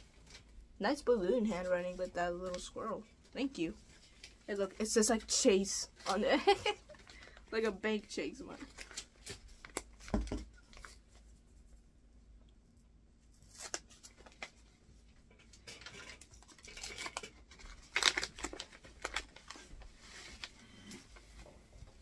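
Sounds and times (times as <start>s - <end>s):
paper rustling and tearing: 8.5s - 11.2s, 13.4s - 14.7s, 15.5s - 20.9s.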